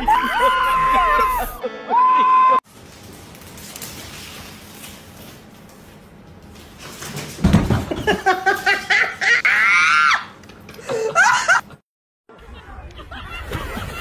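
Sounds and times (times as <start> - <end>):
loud shrill cries: 0.0 - 2.6.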